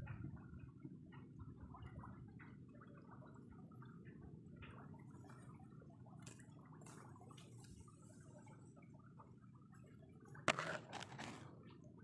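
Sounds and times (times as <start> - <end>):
wind rumble on microphone: 0.0 - 5.6.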